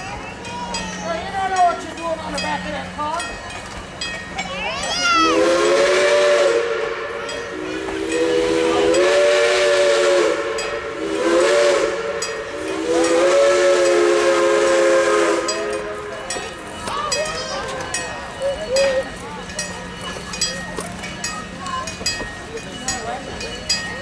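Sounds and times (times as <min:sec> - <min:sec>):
steam locomotive whistle blasts: 0:05.2 - 0:16.1.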